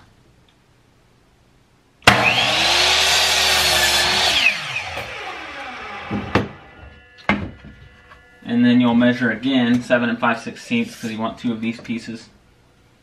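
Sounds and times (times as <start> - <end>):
miter saw cutting wood: 2.1 - 9.0
saw blade winding down whine: 2.1 - 9.4.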